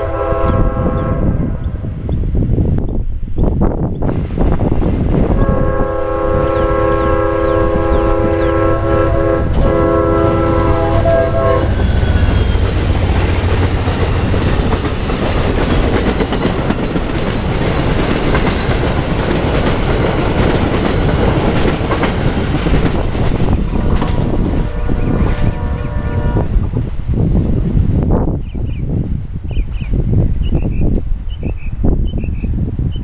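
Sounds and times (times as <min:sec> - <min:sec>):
train air horn: 0:00.0 - 0:01.6, 0:05.4 - 0:12.8, 0:23.8 - 0:26.6
train passing with loud rumble: 0:00.0 - 0:33.0
wheels clacking on rails: 0:04.7 - 0:26.0.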